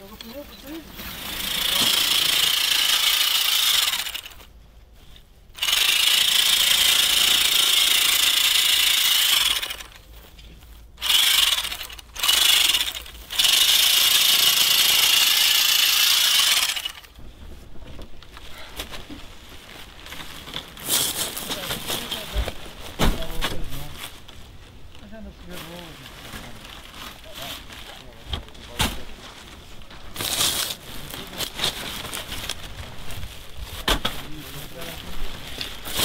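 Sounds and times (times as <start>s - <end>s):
sewing machine whirring: 1.2s - 4.4s, 5.6s - 10.0s, 11.0s - 17.2s
faint irregular clicks and rustles: 4.1s - 5.6s, 9.6s - 11.0s, 16.8s - 36.0s.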